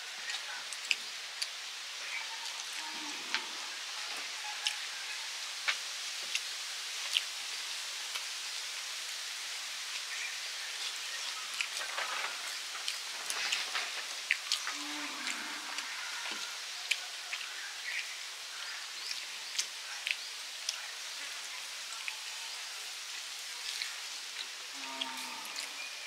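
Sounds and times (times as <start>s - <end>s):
steady hiss: 0.0s - 26.0s
chewing: 0.2s - 1.6s, 6.2s - 7.3s, 10.8s - 17.6s, 19.0s - 20.9s, 23.6s - 25.9s.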